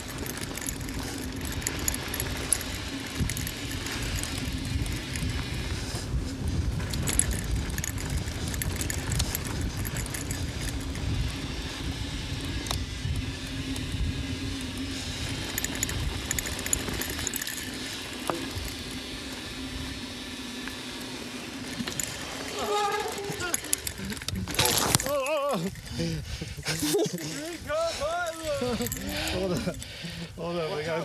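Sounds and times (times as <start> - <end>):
wind rumble on camera: 0.0 - 20.0
tyres rolling over dirt: 0.0 - 29.8
bike rattling and clicking: 0.0 - 31.0.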